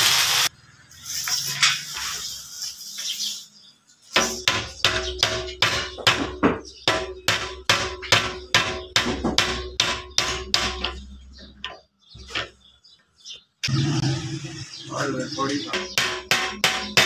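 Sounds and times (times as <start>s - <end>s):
metal hammer blows ringing: 15.5s - 17.0s.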